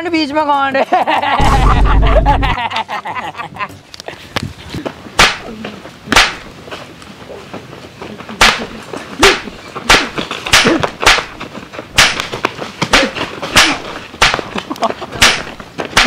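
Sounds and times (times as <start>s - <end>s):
punch and slap cracks: 5.2s - 5.5s, 6.1s - 6.5s, 8.4s - 11.4s, 12.0s - 14.6s, 15.2s - 16.0s.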